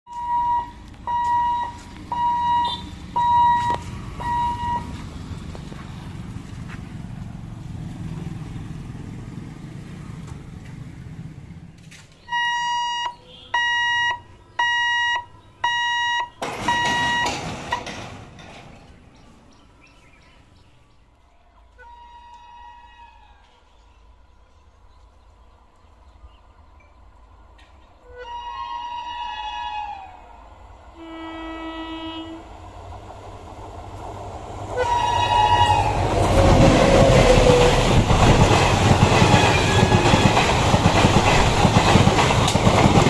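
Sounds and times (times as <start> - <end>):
level crossing hooter beeping: 0.1 - 5.0, 12.3 - 18.1
loud rushing noise: 35.3 - 43.0.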